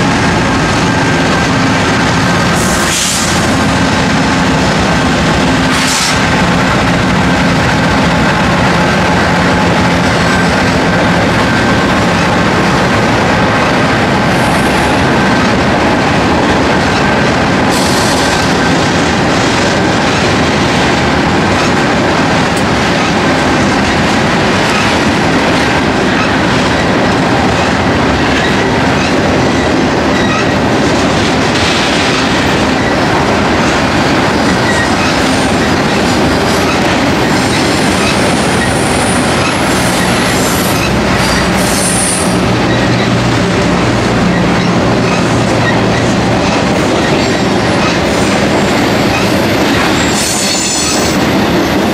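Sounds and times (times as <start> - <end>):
high wheel squeal: 49.0 - 51.8.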